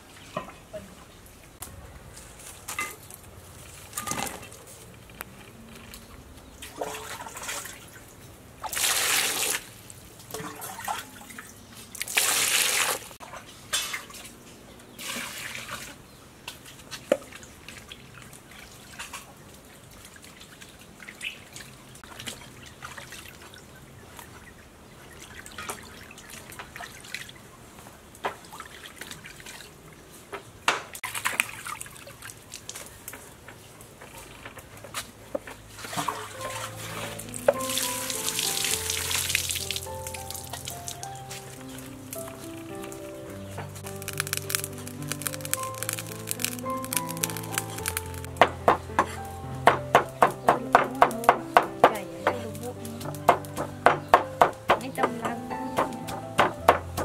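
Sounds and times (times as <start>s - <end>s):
water splashes and drips: 0.0s - 57.0s
water pouring into basin: 10.4s - 13.2s, 36.0s - 41.0s, 43.8s - 48.3s.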